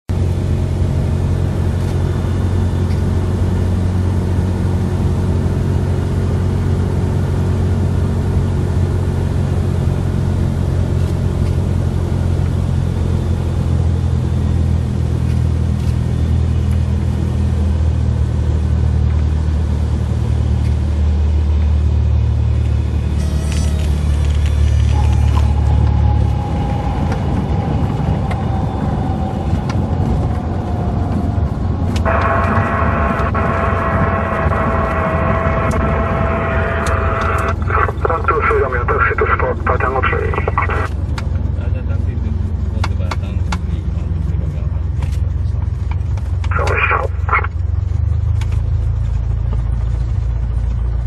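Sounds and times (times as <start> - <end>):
propeller aircraft engine droning: 0.1 - 51.0.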